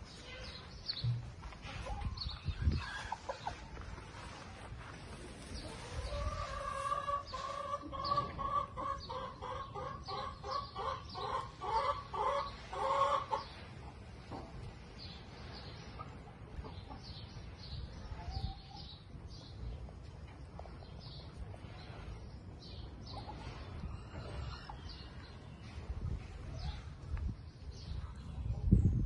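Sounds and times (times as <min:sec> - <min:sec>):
chicken cackling: 0:01.7 - 0:03.8, 0:05.6 - 0:13.5.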